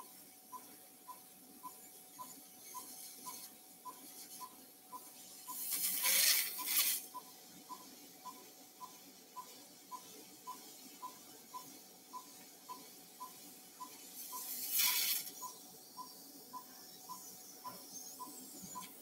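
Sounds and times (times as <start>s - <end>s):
patient monitor beeping: 0.5s - 5.6s
brief hiss: 5.5s - 7.1s, 14.2s - 15.5s.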